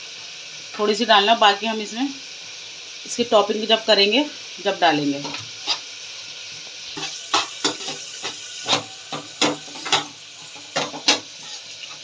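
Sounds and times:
filling sizzling: 0:00.0 - 0:12.0
metal spoon scraping frying pan: 0:05.3 - 0:05.9, 0:06.9 - 0:12.0.

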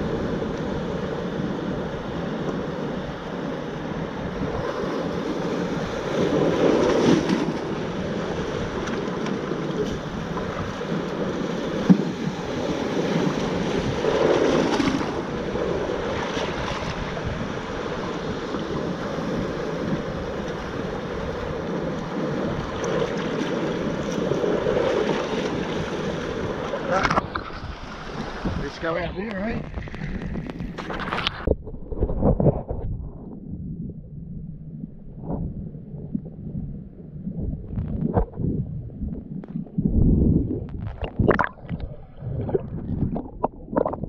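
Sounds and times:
wind on microphone: 0:00.0 - 0:44.0
surf breaking over rocks: 0:04.1 - 0:32.5.

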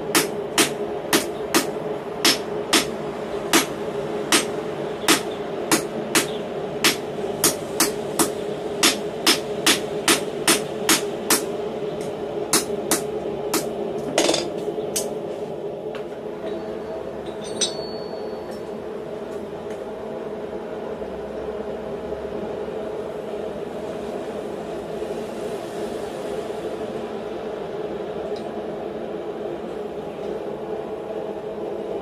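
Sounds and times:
metal clinks: 0:17.2 - 0:18.6.

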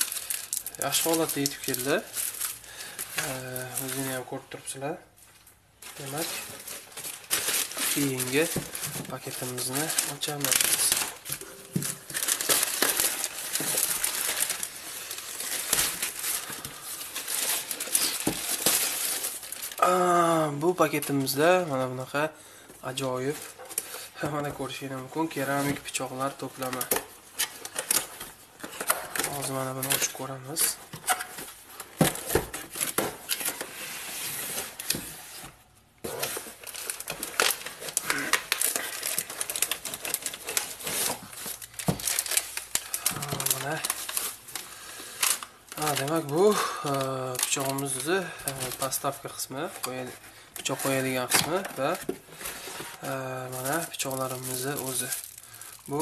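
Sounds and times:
plastic mailer bag crinkling: 0:00.0 - 0:04.9, 0:05.8 - 0:56.0.

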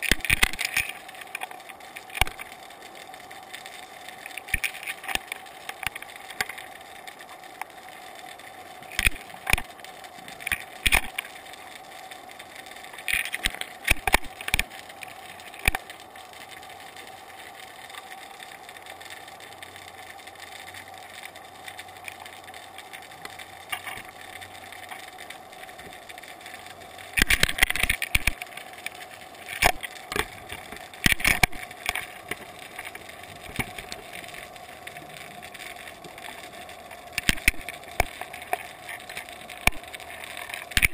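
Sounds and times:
faint underwater hum: 0:00.0 - 0:40.9
sharp clicks and knocks: 0:10.4 - 0:11.3, 0:37.1 - 0:40.9.

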